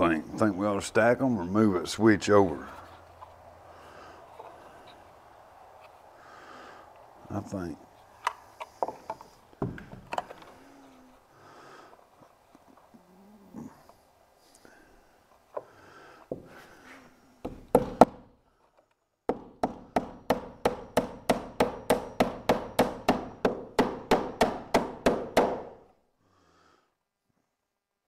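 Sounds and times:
hammer hitting nails: 17.4 - 18.3, 19.3 - 25.8.

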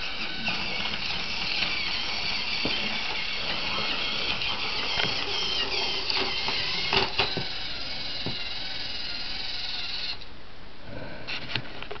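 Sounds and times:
toy train motor whining: 0.0 - 10.3.

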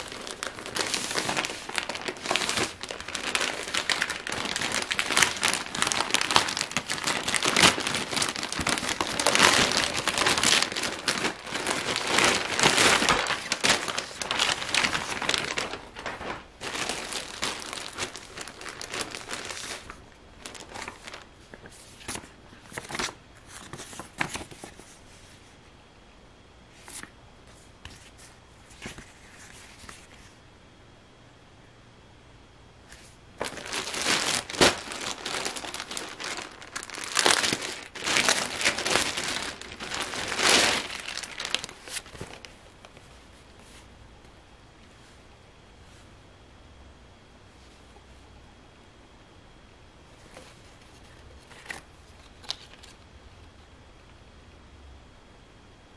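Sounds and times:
plastic packaging crinkling: 0.0 - 24.9, 33.4 - 43.8, 50.3 - 53.0.

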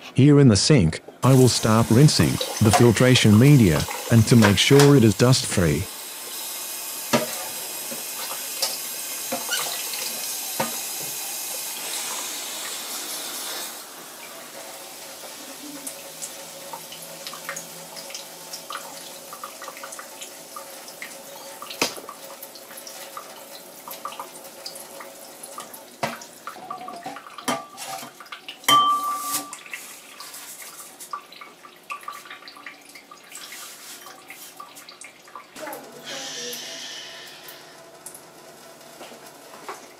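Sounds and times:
tap water splashing into sink: 1.9 - 5.0, 7.0 - 11.6, 16.7 - 24.8, 25.5 - 28.5.

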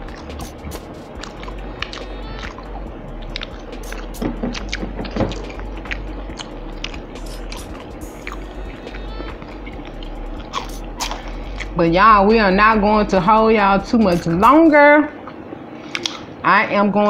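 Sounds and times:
mouth clicks: 0.0 - 11.8
soft background music: 0.0 - 15.5.

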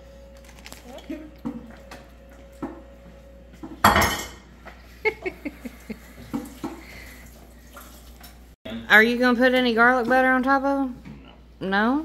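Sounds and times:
dishes clattering: 3.6 - 4.5.

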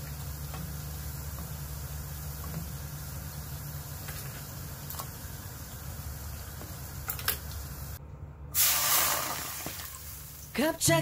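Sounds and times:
water poured into a pan: 8.6 - 10.4.

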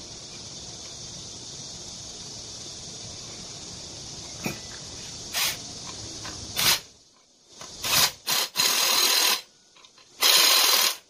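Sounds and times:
cordless drill whirring: 7.7 - 9.5, 10.2 - 11.0.

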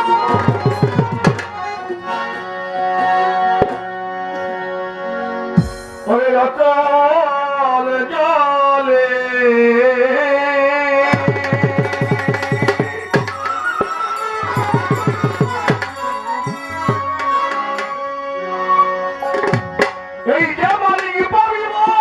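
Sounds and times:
tabla beat: 0.0 - 2.0, 5.6 - 6.2, 11.0 - 18.0, 19.2 - 22.0
violin melody: 0.0 - 6.7, 11.4 - 21.0.

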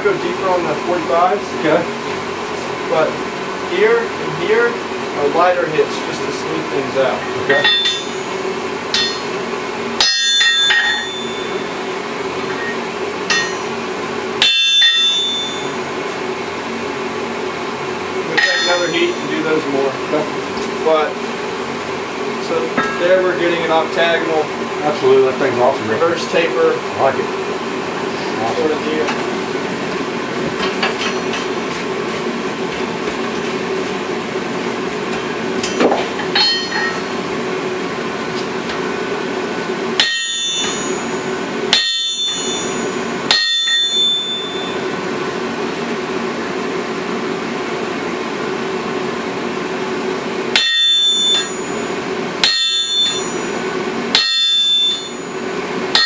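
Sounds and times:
steady hum: 0.0 - 56.0
sledgehammer clanging on anvil: 7.2 - 8.2, 8.9 - 9.4, 10.0 - 11.7, 12.5 - 13.8, 14.4 - 15.8, 18.3 - 19.4, 22.7 - 23.2, 35.6 - 37.2, 40.0 - 44.8, 50.6 - 51.8, 52.4 - 53.6, 54.2 - 55.3.

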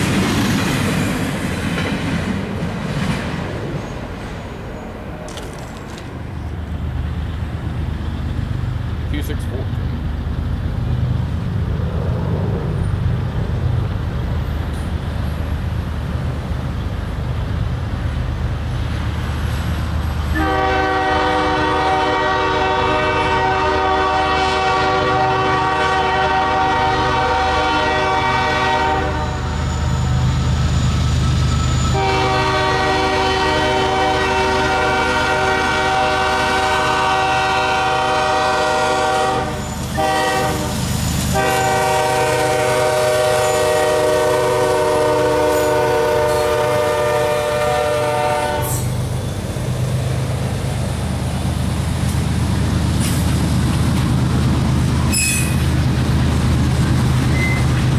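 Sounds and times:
locomotive engine rumble: 0.0 - 57.9
train air horn blasts: 20.3 - 29.9, 31.8 - 48.9.

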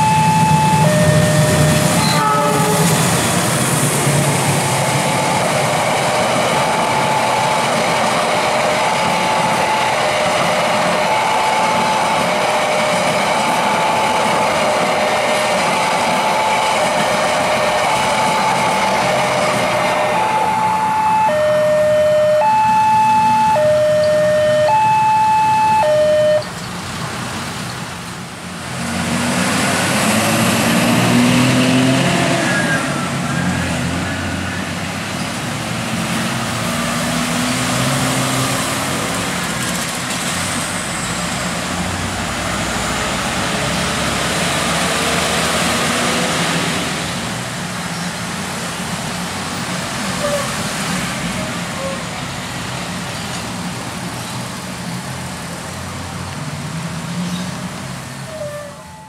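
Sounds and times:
motorcycles and cars pulling away: 0.0 - 2.1, 28.7 - 51.6
two-tone crossing alarm: 0.0 - 3.0, 4.6 - 14.5, 15.2 - 26.6, 58.2 - 59.0.

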